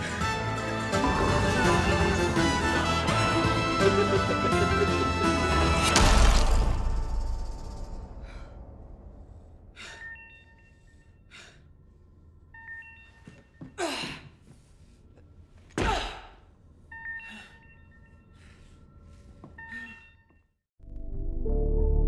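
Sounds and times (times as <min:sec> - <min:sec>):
crash: 0:05.6 - 0:09.8.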